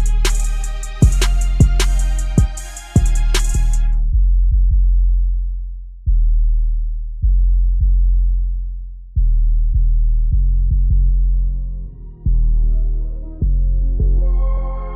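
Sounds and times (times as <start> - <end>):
hip-hop instrumental music: 0.0 - 4.0
deep bass notes: 0.0 - 14.9.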